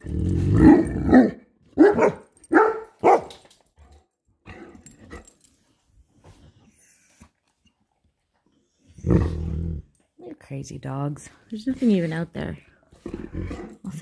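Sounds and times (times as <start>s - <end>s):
dogs barking: 0.7s - 3.4s.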